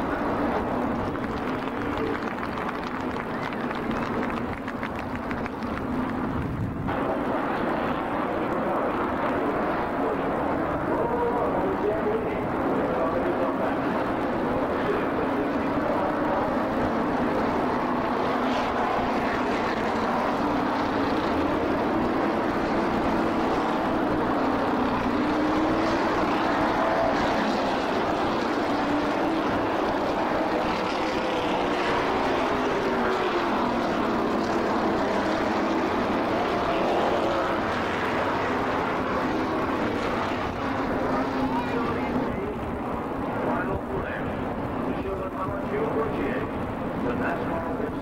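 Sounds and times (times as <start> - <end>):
race car engines passing: 0.0 - 48.0.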